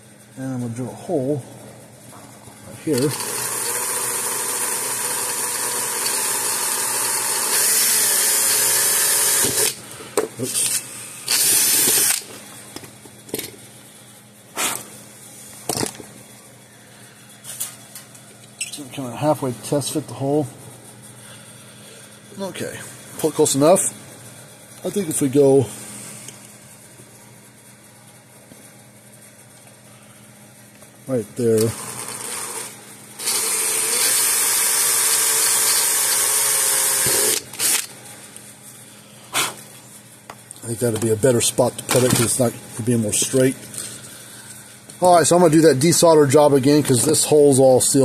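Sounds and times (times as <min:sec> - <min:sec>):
faint steady hum: 0:00.0 - 0:48.0
cordless drill drilling: 0:03.0 - 0:09.8, 0:11.3 - 0:12.2, 0:31.7 - 0:37.9.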